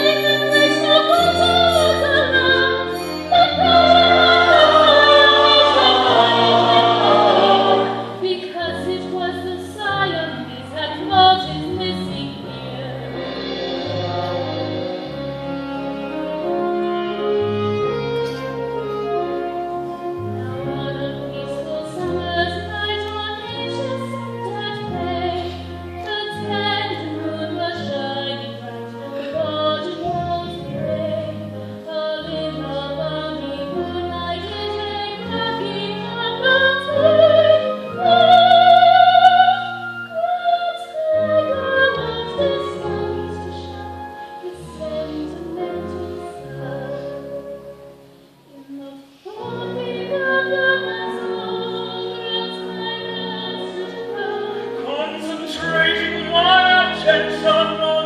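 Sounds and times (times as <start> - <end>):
low instrumental accompaniment: 0.0 - 40.2.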